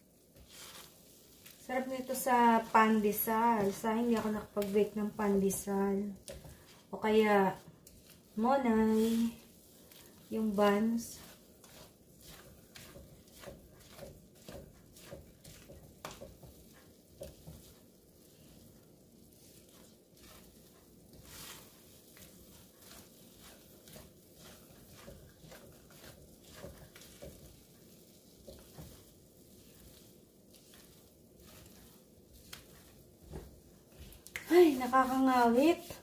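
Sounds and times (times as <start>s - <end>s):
utensil scraping a pan: 0.2s - 36.0s.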